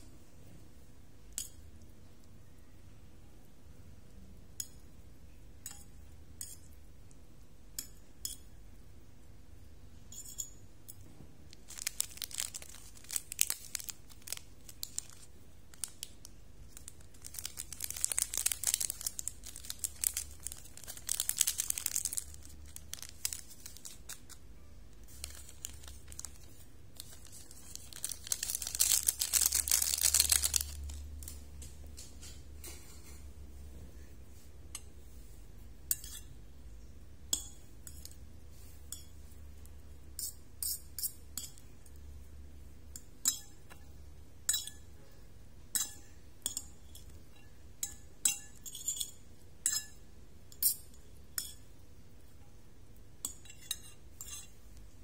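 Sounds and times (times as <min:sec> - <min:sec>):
plastic sachets crinkling and tearing: 0:11.5 - 0:31.4.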